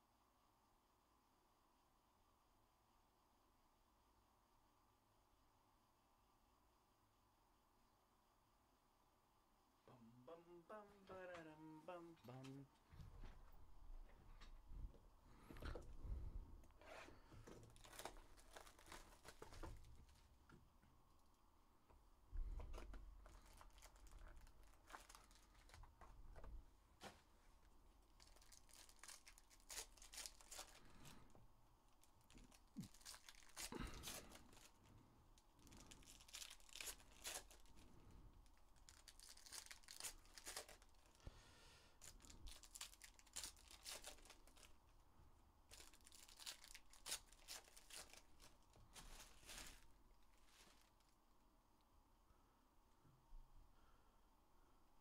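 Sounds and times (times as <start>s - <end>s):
card wrappers crinkling and tearing: 17.0s - 20.3s, 22.7s - 26.4s, 28.0s - 41.2s, 42.0s - 44.9s, 45.7s - 51.2s.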